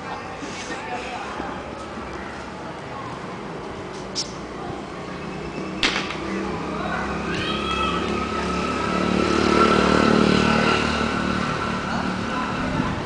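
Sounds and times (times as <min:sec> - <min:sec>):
motor vehicle passing: 0:00.0 - 0:13.0
cricket bat hitting ball: 0:05.8 - 0:06.2.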